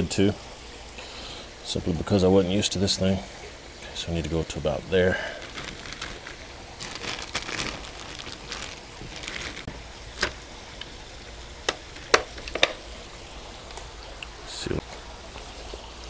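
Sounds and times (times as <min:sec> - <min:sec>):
plastic bag crinkling: 0:05.1 - 0:10.5.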